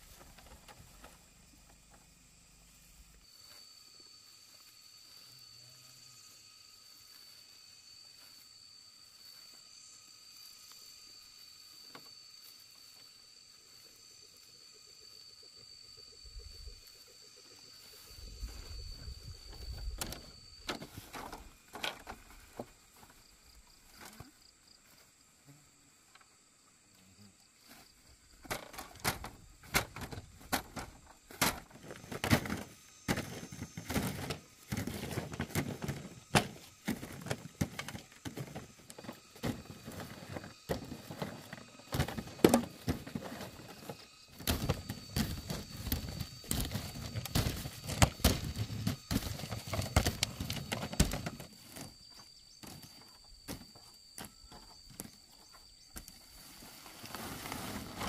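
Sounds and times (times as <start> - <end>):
corn cobs clattering: 28.4 - 52.0, 56.0 - 58.0
plastic sack rustling: 56.4 - 58.0.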